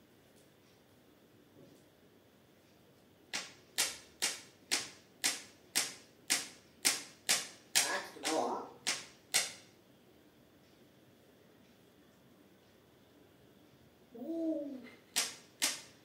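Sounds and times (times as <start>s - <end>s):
sharp clapping clicks: 3.3s - 9.7s, 15.1s - 16.0s.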